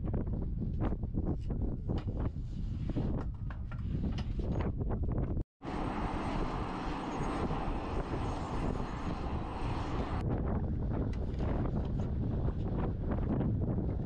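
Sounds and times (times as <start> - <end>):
wind on microphone: 0.0 - 14.0
aircraft turbine engine whine: 5.6 - 10.2.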